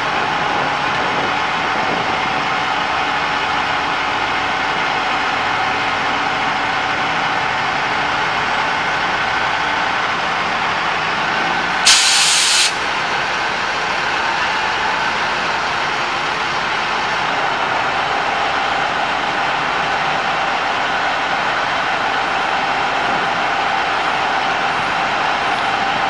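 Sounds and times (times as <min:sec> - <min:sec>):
diesel engine running: 0:00.0 - 0:26.0
compressed air hiss: 0:11.9 - 0:12.8.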